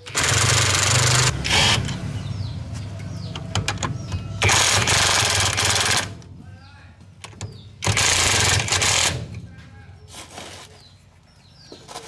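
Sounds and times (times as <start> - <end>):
impact wrench rattling: 3.3 - 6.3, 7.2 - 9.4.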